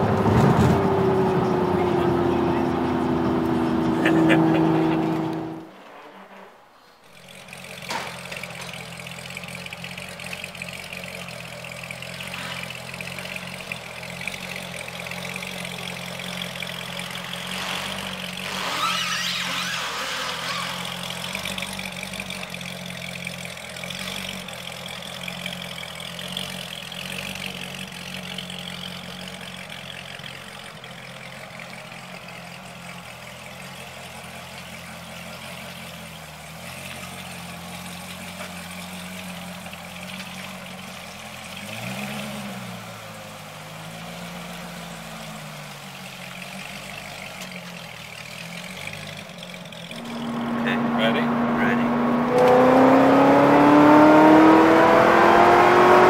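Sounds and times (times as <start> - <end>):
car engine idling: 0.0 - 18.5, 19.7 - 56.0.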